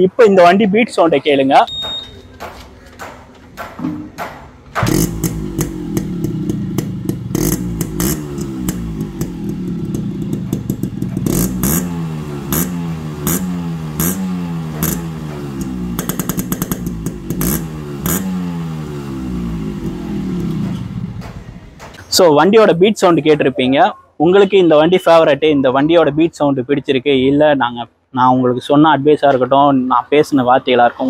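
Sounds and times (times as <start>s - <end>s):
exhaust cracks: 4.3s - 22.2s
motorcycle engine revving: 4.8s - 21.9s.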